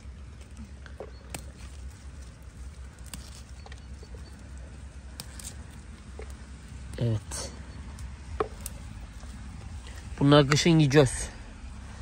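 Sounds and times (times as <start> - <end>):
stems snapping: 0.0 - 7.3, 7.9 - 10.8
leaves rustling: 0.0 - 12.0
low steady rumble: 0.0 - 12.0.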